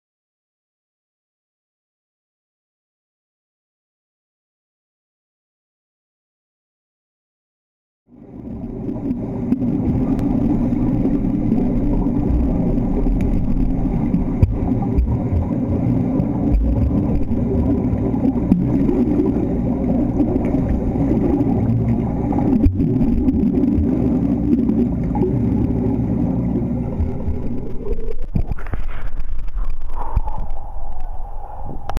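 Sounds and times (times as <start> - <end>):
muffled underwater pool water rumble: 8.1 - 31.9.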